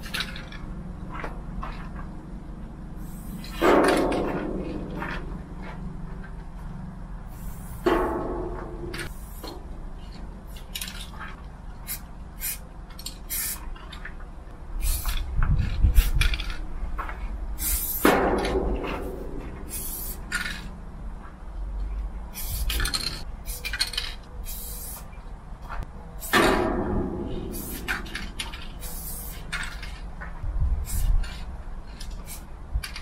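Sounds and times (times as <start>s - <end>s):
low rumble: 0.5s - 10.6s, 18.2s - 23.3s, 25.8s - 29.0s
spray-paint can hissing: 3.0s - 3.6s, 7.3s - 7.9s, 9.1s - 9.5s, 11.9s - 12.6s, 13.3s - 13.6s, 14.8s - 15.2s, 17.6s - 18.1s, 19.7s - 20.5s, 22.3s - 23.8s, 24.4s - 25.1s, 27.5s - 28.0s, 28.8s - 29.6s, 30.8s - 31.1s, 32.2s - 32.5s.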